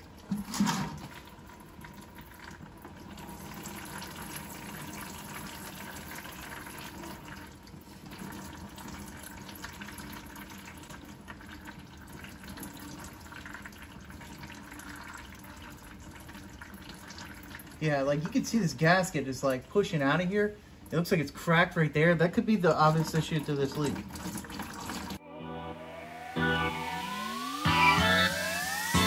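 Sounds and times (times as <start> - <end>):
fluid pouring into plastic bucket: 0.0 - 17.8, 22.8 - 25.2.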